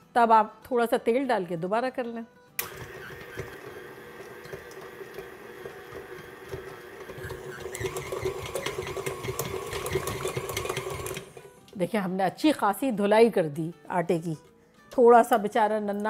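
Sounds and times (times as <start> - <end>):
stand mixer motor hum: 2.6 - 11.4.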